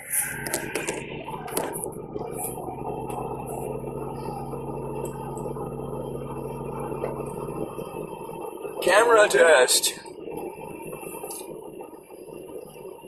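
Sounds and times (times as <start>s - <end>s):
car engine droning: 0.0s - 13.0s
tyre and road noise: 0.0s - 13.0s.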